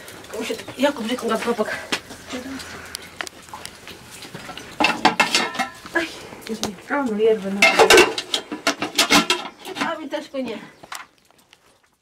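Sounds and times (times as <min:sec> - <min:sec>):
metal pot and lid clattering: 0:04.8 - 0:05.9, 0:07.6 - 0:10.1.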